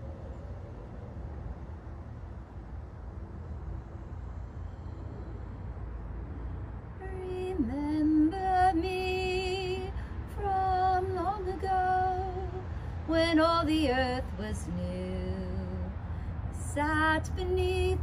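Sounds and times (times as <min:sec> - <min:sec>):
woman singing unaccompanied: 0:07.0 - 0:16.0, 0:16.6 - 0:18.0.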